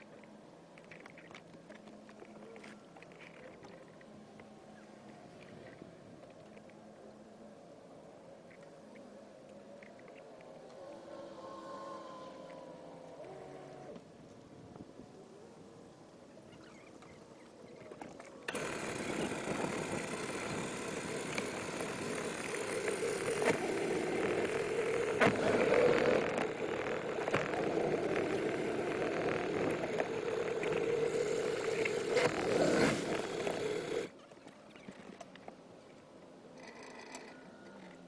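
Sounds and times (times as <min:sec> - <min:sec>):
water noise: 0:00.0 - 0:38.0
sharp clicks: 0:18.5 - 0:34.1
outboard engine running: 0:18.5 - 0:35.2.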